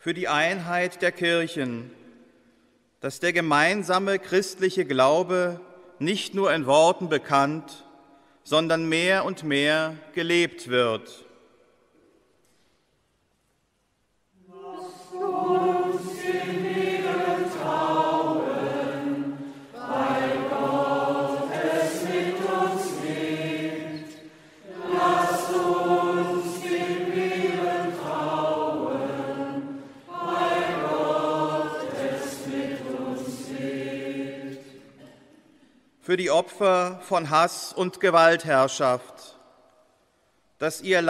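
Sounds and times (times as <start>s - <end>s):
choir chanting: 14.4s - 35.3s.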